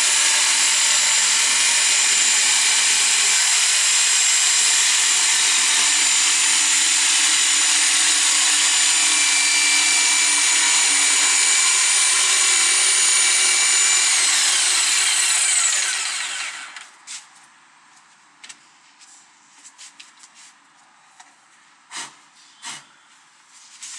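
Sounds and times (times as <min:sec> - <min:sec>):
jigsaw cutting chipboard: 0:00.0 - 0:16.8.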